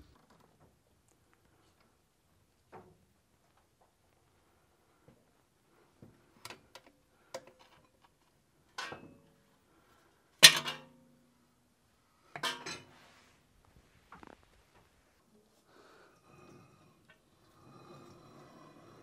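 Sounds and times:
metal clanks and clinks: 12.4s - 12.9s.

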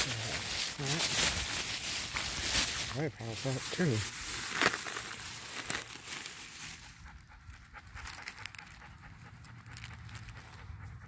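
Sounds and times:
plastic bags crinkling: 0.0s - 7.0s
dog panting: 6.7s - 11.0s.

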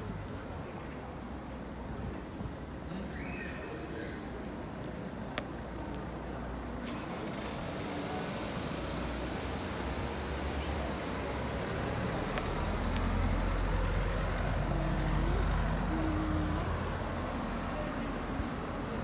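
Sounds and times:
vehicles passing: 0.0s - 19.0s
low engine rumble: 5.3s - 19.0s.

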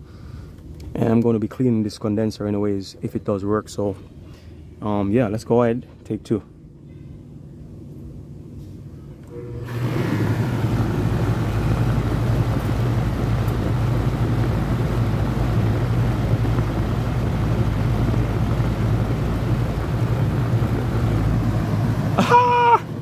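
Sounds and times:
air conditioner hum: 0.0s - 23.0s
rush of air: 9.4s - 23.0s.

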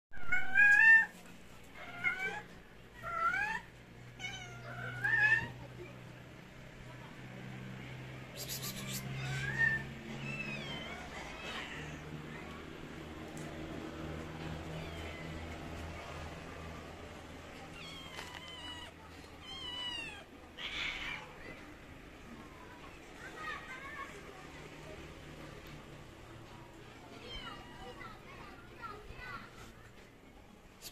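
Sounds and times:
cat meowing: 0.2s - 1.1s, 17.7s - 21.4s
cats meowing: 0.2s - 5.6s, 8.4s - 12.4s, 14.5s - 15.8s, 17.6s - 21.6s.

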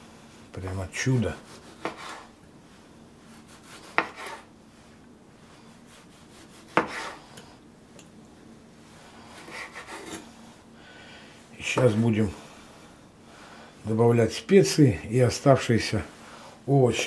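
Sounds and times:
knife slicing tomatoes: 0.7s - 2.3s, 3.3s - 4.5s, 5.9s - 7.5s, 9.3s - 10.3s.

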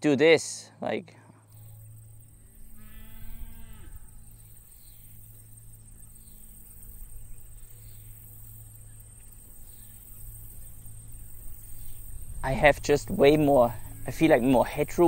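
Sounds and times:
cow mooing: 2.6s - 4.5s
wind rumble on microphone: 9.5s - 15.0s.

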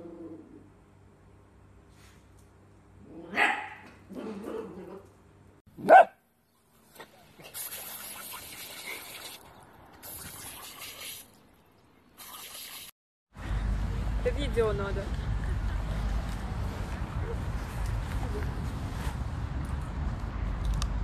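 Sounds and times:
puppy barking: 3.3s - 3.9s, 5.8s - 6.2s
sprinkler water spray hissing: 7.4s - 11.4s, 12.2s - 12.9s.

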